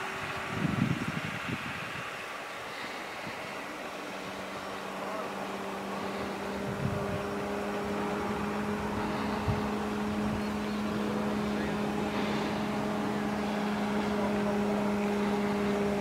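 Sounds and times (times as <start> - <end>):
model plane electric motor drone: 0.0 - 16.0.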